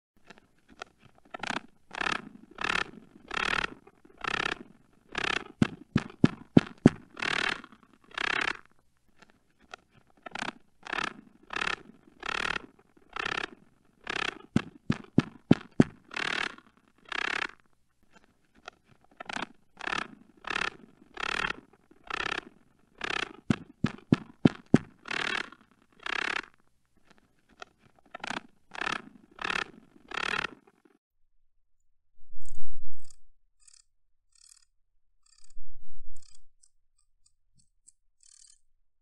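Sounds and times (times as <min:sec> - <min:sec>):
short dry scraping rasps: 0:00.2 - 0:31.0
sharp clicks: 0:00.3 - 0:17.6, 0:18.6 - 0:30.8.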